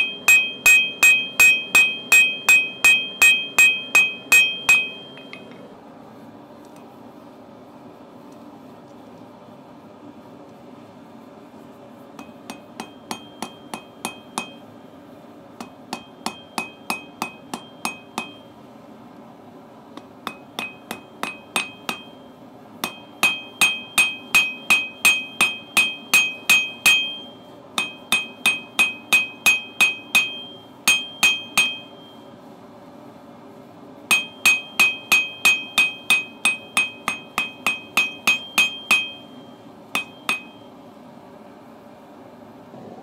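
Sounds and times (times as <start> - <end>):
hammer striking steel on anvil: 0.0 - 5.6, 12.2 - 14.7, 15.6 - 18.5, 20.0 - 32.3, 34.1 - 40.8.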